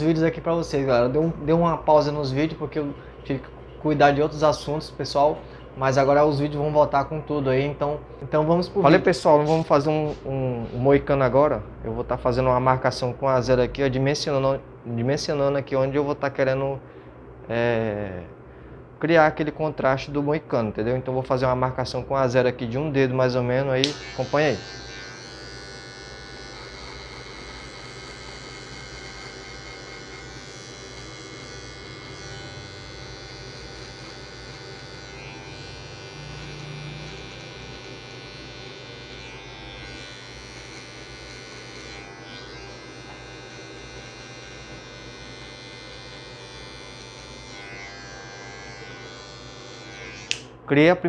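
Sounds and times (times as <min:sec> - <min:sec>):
electric hair clipper humming: 0:23.2 - 0:50.6.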